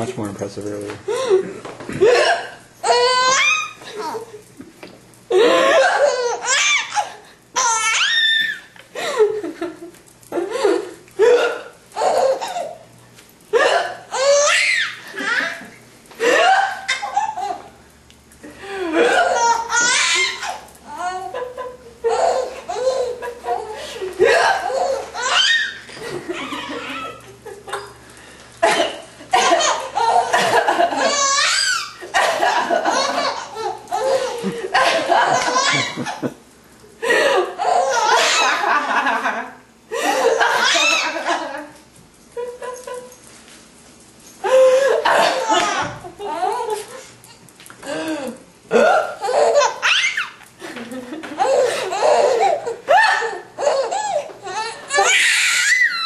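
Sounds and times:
baby laughing: 0:02.0 - 0:04.4, 0:05.4 - 0:08.6, 0:11.3 - 0:12.8, 0:13.6 - 0:17.7, 0:19.0 - 0:27.9, 0:29.4 - 0:36.3, 0:37.6 - 0:38.8, 0:40.0 - 0:41.5, 0:48.8 - 0:50.4, 0:51.2 - 0:56.0.

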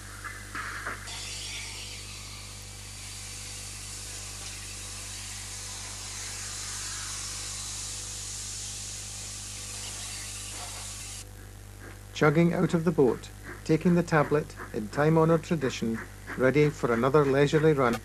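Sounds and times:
low mains hum: 0:00.0 - 0:18.0
steam hissing: 0:01.1 - 0:11.2.

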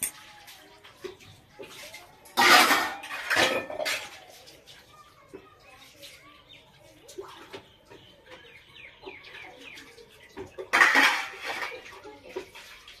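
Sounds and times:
toy metal pots clinking: 0:00.0 - 0:04.7, 0:10.2 - 0:13.0.

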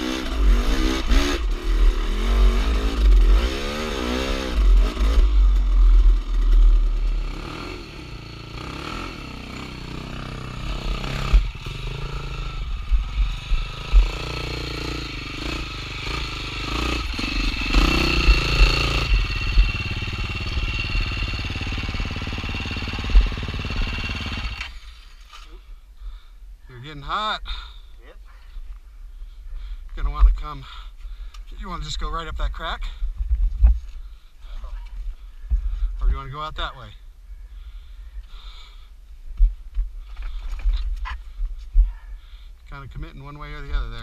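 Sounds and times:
dirt bike engine revving: 0:00.0 - 0:25.2.

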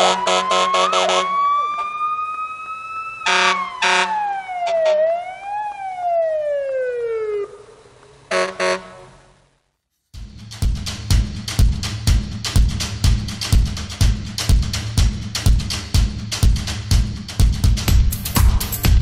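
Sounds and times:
short honks: 0:08.3 - 0:09.2
drum-led music: 0:10.2 - 0:19.0.

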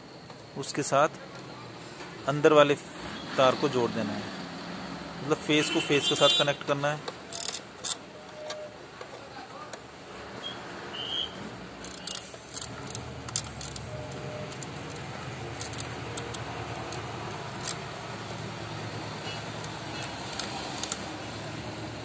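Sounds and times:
small metallic clicks and rattles: 0:07.0 - 0:08.0, 0:11.8 - 0:21.2.

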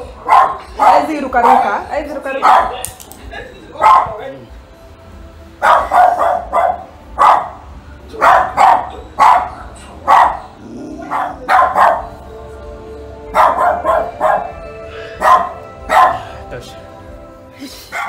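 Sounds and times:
background music: 0:00.0 - 0:18.0
dog barking: 0:00.2 - 0:01.8, 0:02.4 - 0:02.8, 0:03.8 - 0:04.2, 0:05.6 - 0:12.2, 0:13.3 - 0:14.6, 0:15.2 - 0:16.3.

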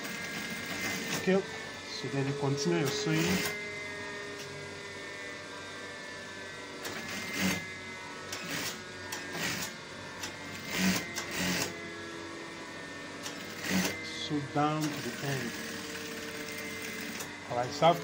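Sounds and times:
sewing machine stitching: 0:00.0 - 0:01.4, 0:02.8 - 0:03.6, 0:06.8 - 0:07.6, 0:08.4 - 0:09.7, 0:10.5 - 0:11.7, 0:13.2 - 0:14.0, 0:14.8 - 0:17.3
sewing machine motor hum: 0:00.0 - 0:18.0.

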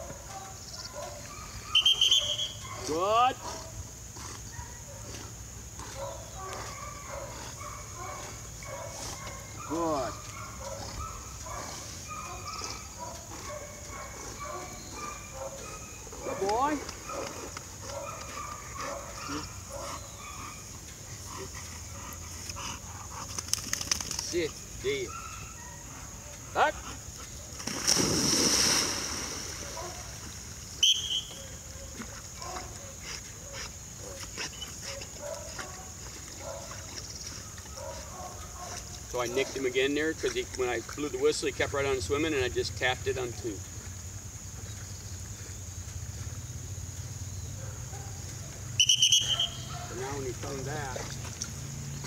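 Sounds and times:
high whistle blast: 0:01.7 - 0:02.6, 0:30.8 - 0:31.4, 0:48.8 - 0:49.7
dog swimming and breathing: 0:03.5 - 0:24.6.

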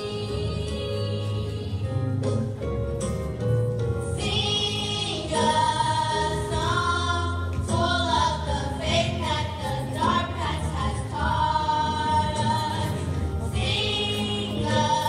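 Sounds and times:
female voices singing together: 0:04.2 - 0:15.0.

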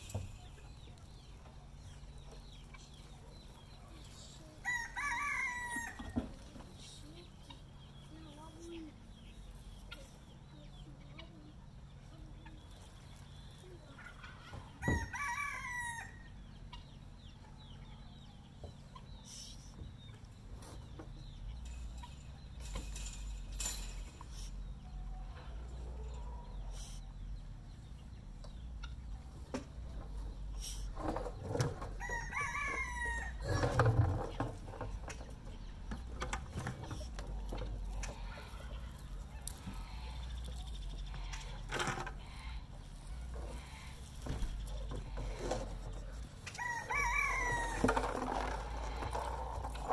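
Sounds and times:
rooster crowing: 0:04.6 - 0:06.2, 0:14.8 - 0:16.3, 0:32.0 - 0:33.5, 0:46.5 - 0:48.3
faint chirps: 0:06.8 - 0:14.2.

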